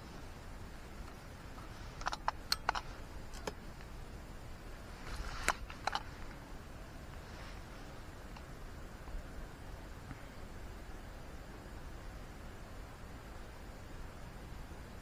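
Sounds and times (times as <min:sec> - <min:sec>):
faint steady hiss: 0:00.0 - 0:15.0
small sharp handling clicks: 0:02.0 - 0:03.9, 0:05.4 - 0:06.4
brief rustle: 0:05.0 - 0:06.4.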